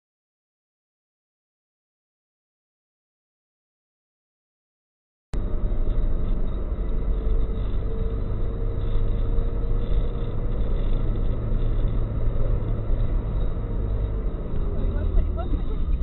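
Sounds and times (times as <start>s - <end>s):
road and engine rumble: 5.4s - 16.0s.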